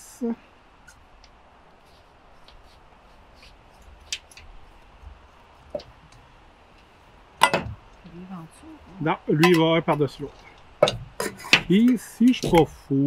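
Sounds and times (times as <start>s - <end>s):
metal ringing: 7.4s - 7.9s.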